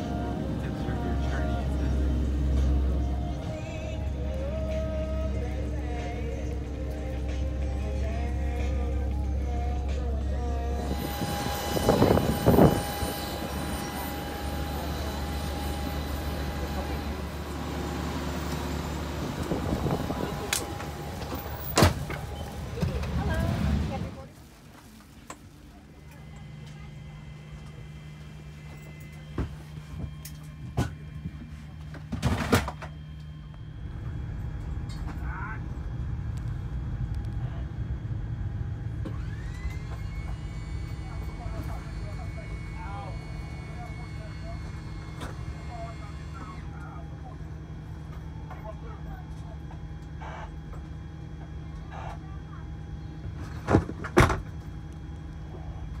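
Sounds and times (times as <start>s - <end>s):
low rumble: 0.0s - 32.2s, 32.9s - 44.6s
aircraft engines whining: 0.0s - 56.0s.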